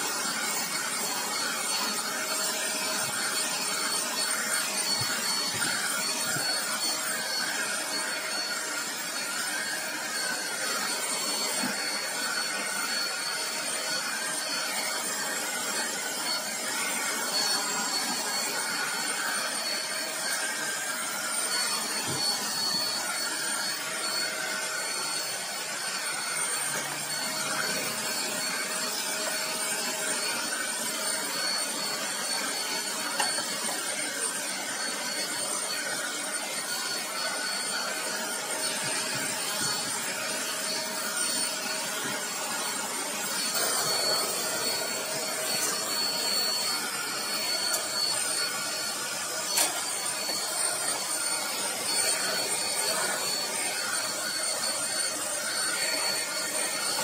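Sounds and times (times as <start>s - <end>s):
handheld vacuum cleaner whining: 0.0s - 57.0s.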